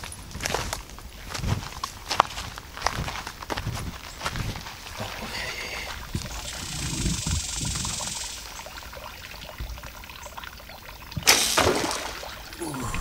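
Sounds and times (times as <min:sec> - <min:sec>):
footsteps through dry grass: 0:00.0 - 0:07.2
leaves and branches rustling: 0:00.0 - 0:08.4.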